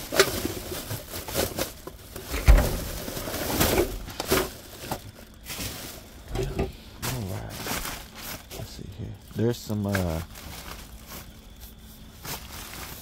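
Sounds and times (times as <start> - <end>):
plastic bags rustling and crinkling: 0.0 - 13.0
items knocking: 2.2 - 5.0
heavy thump: 2.3 - 3.1.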